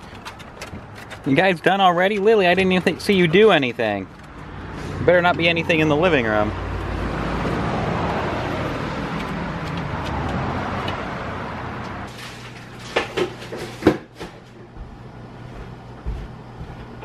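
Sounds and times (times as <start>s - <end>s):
sharp knocks and clicks: 0.0s - 1.4s, 9.1s - 11.0s
steady rushing outdoor noise: 0.0s - 12.1s.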